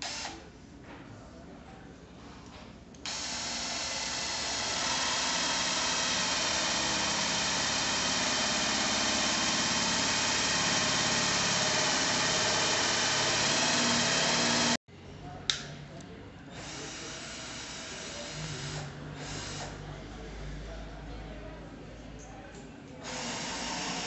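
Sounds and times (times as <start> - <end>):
cordless drill straining: 0.0 - 0.4, 3.0 - 14.8, 23.0 - 24.0.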